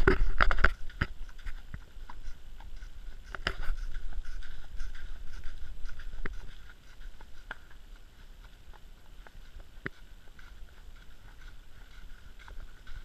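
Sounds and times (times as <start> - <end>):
microphone rumble: 0.0 - 1.3
hooves crunching dry leaves: 0.0 - 13.0.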